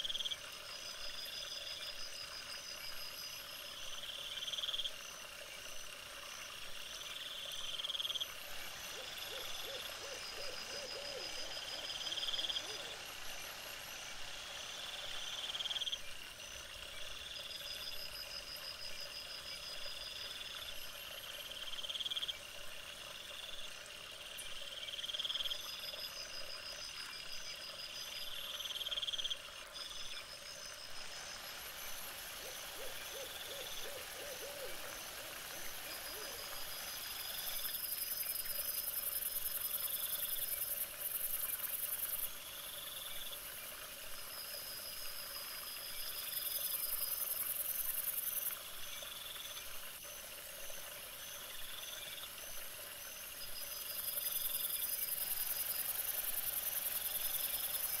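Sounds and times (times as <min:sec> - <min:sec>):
wavering lower animal calls: 0:08.3 - 0:13.8, 0:31.6 - 0:37.7.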